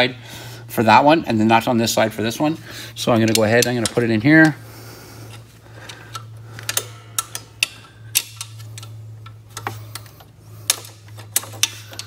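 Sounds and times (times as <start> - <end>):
steady low hum: 0.0 - 12.0
metallic clicks and taps: 3.2 - 4.6, 5.9 - 12.0.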